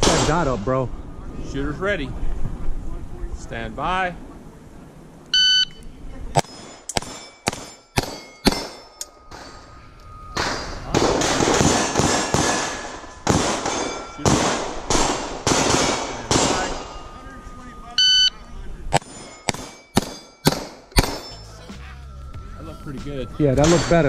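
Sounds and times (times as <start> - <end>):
pistol shots: 0.0 - 0.5, 6.4 - 9.5, 10.4 - 17.0, 18.9 - 21.3
steel plates clanging: 6.4 - 21.6, 23.6 - 24.0.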